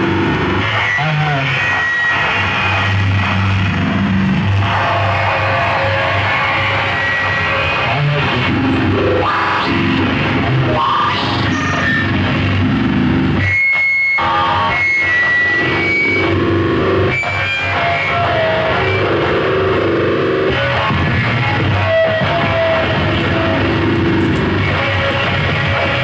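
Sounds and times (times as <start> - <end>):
harsh distorted noise music: 0.0 - 26.0
high squealing tones: 10.6 - 12.4.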